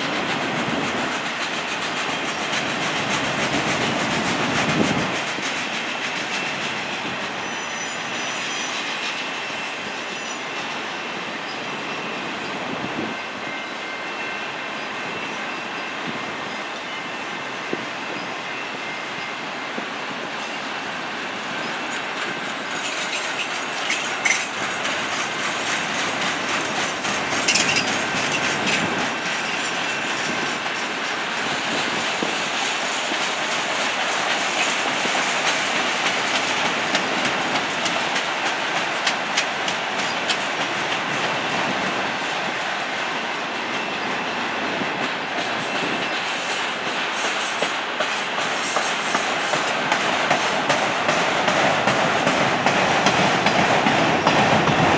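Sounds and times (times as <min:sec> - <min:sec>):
freight train wheels rumbling on rail: 0:00.0 - 0:54.9
clicks and clanks over rail joints: 0:21.7 - 0:41.7.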